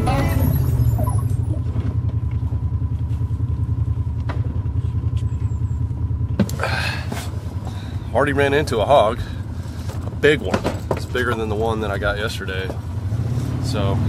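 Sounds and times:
vehicle engine rumble: 0:00.0 - 0:14.0.

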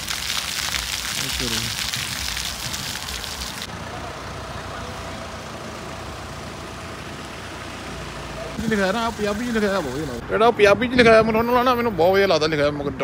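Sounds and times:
water fountain splashing: 0:00.0 - 0:06.1, 0:08.5 - 0:10.2.

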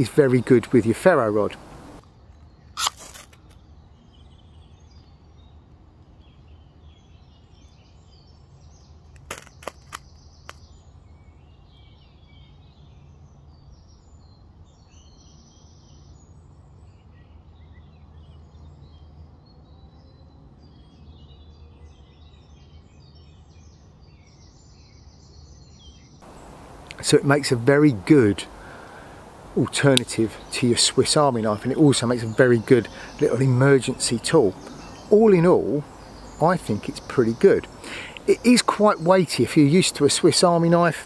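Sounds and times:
birds chirping: 0:00.0 - 0:41.0
steady low rumble: 0:26.2 - 0:38.5.

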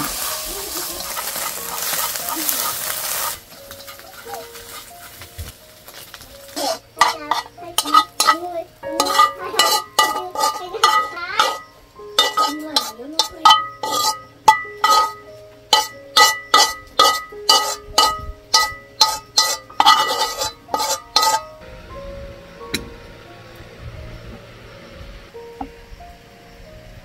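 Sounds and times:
metal utensil clinking on cookware: 0:00.0 - 0:04.8, 0:06.5 - 0:11.6, 0:12.2 - 0:21.5.

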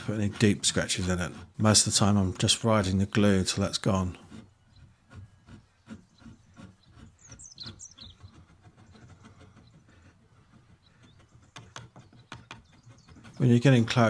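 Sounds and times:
hand file strokes: 0:00.0 - 0:14.0
small bird chirping: 0:05.6 - 0:09.9, 0:10.5 - 0:13.4.

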